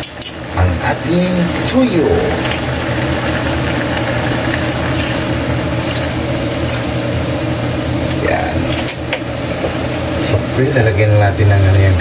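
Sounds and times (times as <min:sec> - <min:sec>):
food bubbling in a wok: 0:01.6 - 0:10.2
sauce pouring into pan: 0:02.3 - 0:08.2.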